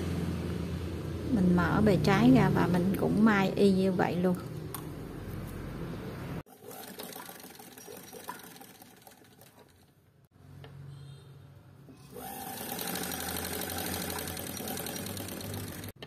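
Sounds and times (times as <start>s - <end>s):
sewing machine stitching: 6.5s - 10.0s, 12.0s - 16.0s.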